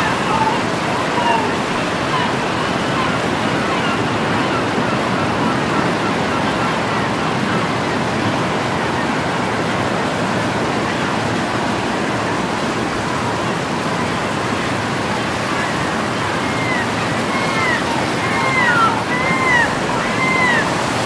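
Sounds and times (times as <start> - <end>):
ocean surf breaking: 0.0 - 21.0.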